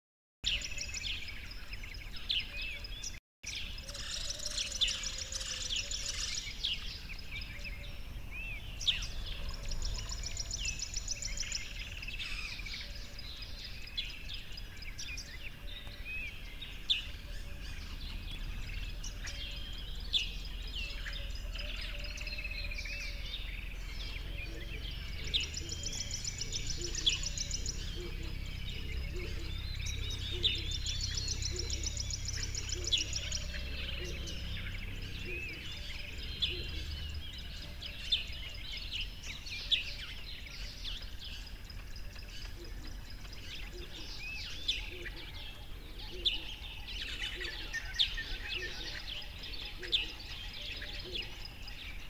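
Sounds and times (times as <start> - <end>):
songbirds chirping and trilling: 0.4 - 52.0
low steady rumble: 17.0 - 39.0.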